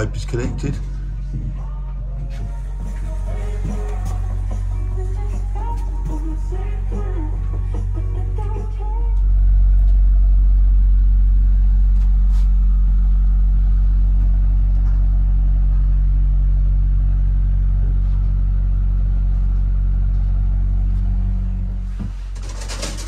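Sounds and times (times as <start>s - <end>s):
engine humming steadily: 0.0s - 22.5s.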